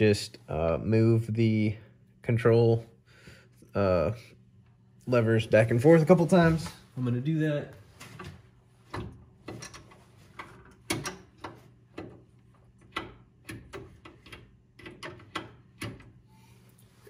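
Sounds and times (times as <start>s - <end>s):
hydraulic levers clicking and clunking: 8.9s - 16.2s.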